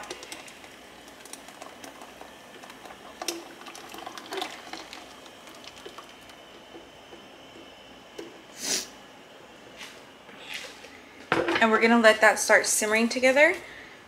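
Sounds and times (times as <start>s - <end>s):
liquid pouring and splashing: 0.0s - 7.2s.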